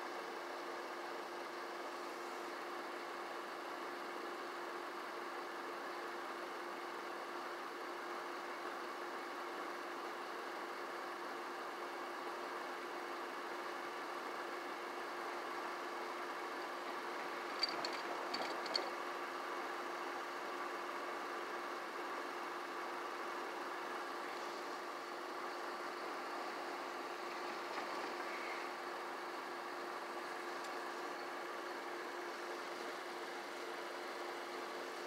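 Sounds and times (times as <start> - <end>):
engine idling: 14.0 - 35.0.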